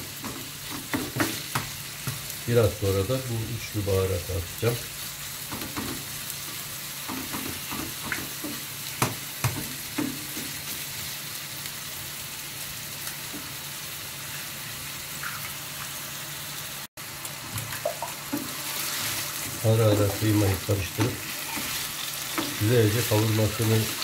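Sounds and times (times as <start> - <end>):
meat sizzling in a frying pan: 0.0 - 24.0
wooden spoon scraping a pan: 18.3 - 24.0.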